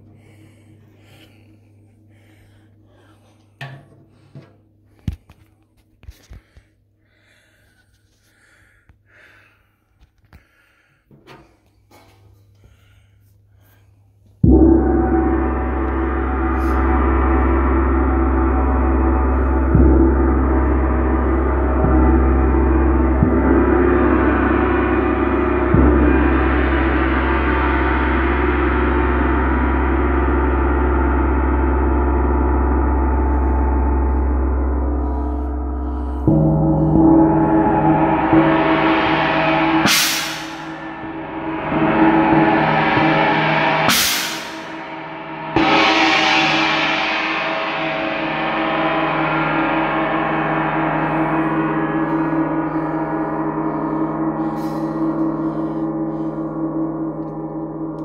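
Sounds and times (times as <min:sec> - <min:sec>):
gongs ringing: 0:14.4 - 0:58.0.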